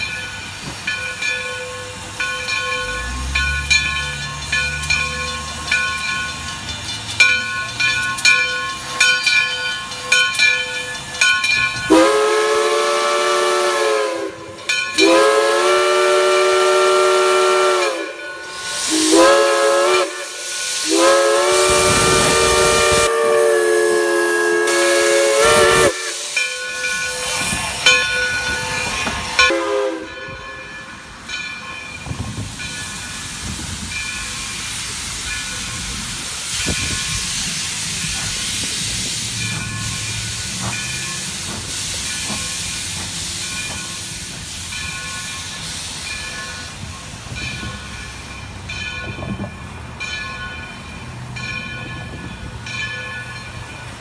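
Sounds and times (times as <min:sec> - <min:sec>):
locomotive clanks: 0:00.0 - 0:12.0, 0:26.2 - 0:54.0
steam locomotive chime whistle: 0:00.0 - 0:54.0.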